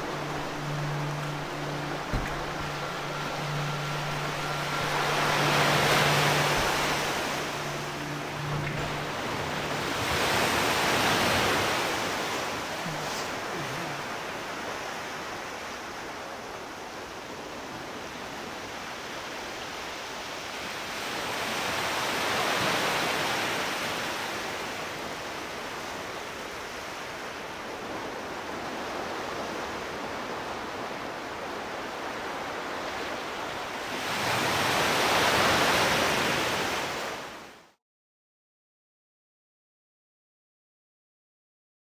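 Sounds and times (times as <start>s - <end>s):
rushing wind: 0.0s - 24.2s.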